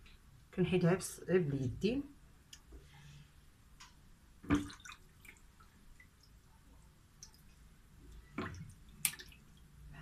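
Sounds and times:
faint drips and squishes: 2.4s - 10.0s
water splash: 4.4s - 5.5s, 8.3s - 9.6s.

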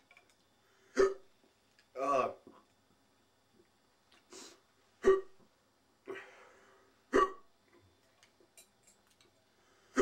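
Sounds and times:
breathing: 0.6s - 1.0s, 6.1s - 7.0s, 9.5s - 10.0s
person hiccuping: 1.0s - 1.3s, 5.0s - 5.4s, 7.1s - 7.5s.

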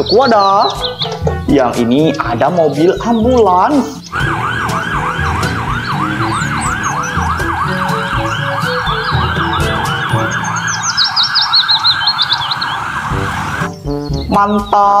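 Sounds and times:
ambulance siren yelping: 0.0s - 1.5s, 3.9s - 13.9s
road traffic rumble: 0.0s - 14.3s
high warbling siren tone: 4.0s - 13.8s.

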